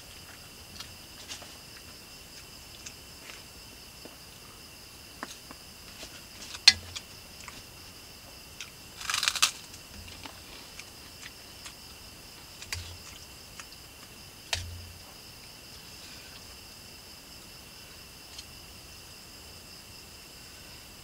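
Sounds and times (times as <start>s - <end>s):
night insects chirring: 0.0s - 21.0s
food crunch: 8.6s - 11.8s.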